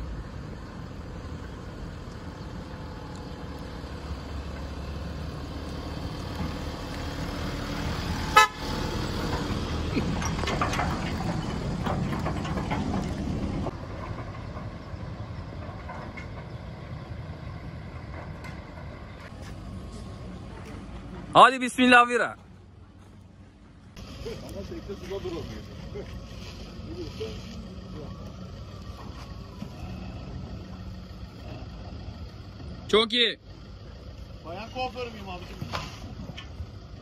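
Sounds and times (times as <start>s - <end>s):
truck engine driving past: 0.0s - 37.0s
car horn toot: 8.3s - 8.8s.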